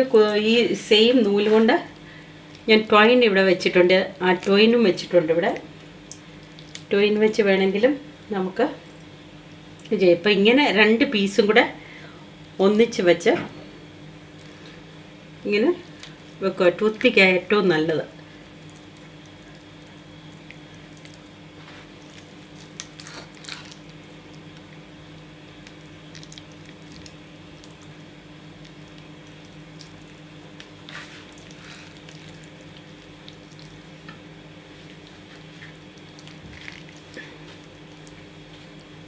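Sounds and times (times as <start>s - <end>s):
steady electrical hum: 0.0s - 39.0s
wet squishing of raw chicken: 20.3s - 24.8s, 25.6s - 27.9s, 28.6s - 34.0s, 34.6s - 38.9s.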